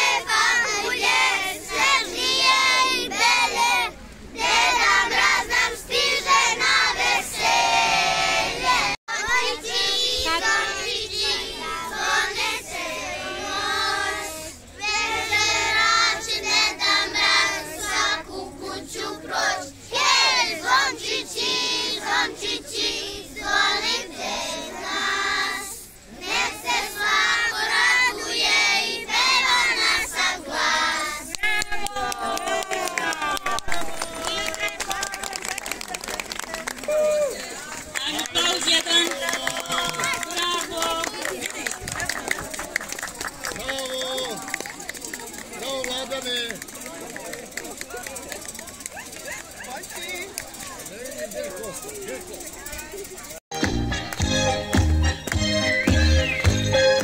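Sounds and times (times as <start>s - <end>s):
children singing together: 0.0s - 31.3s.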